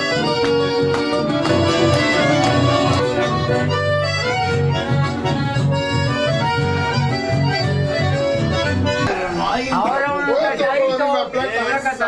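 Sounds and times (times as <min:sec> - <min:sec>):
people clapping along: 0:00.0 - 0:04.6
accordion chords: 0:00.0 - 0:09.5
strummed acoustic guitar: 0:01.0 - 0:03.9
bass line: 0:01.1 - 0:09.5.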